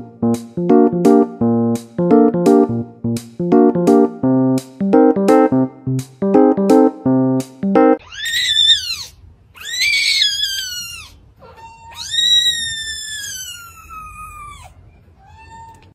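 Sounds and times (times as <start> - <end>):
kitten meowing: 8.0 - 15.9.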